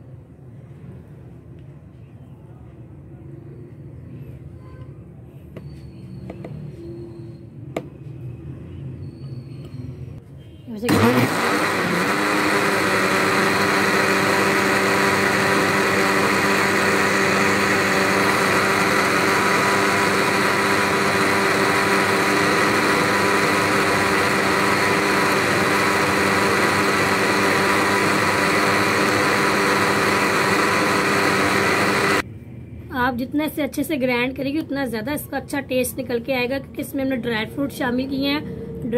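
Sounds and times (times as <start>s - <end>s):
blender motor whine: 10.9s - 32.2s.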